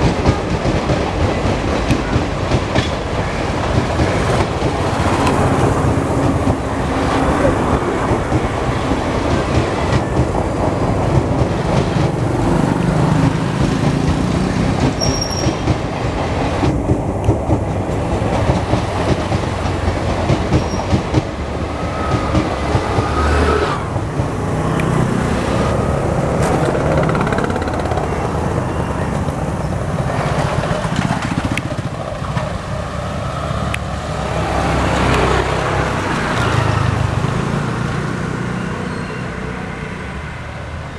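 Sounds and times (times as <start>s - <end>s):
train wheels rumbling on rail: 0.0s - 40.9s
clicking over rail joints: 26.2s - 28.4s, 30.0s - 32.7s.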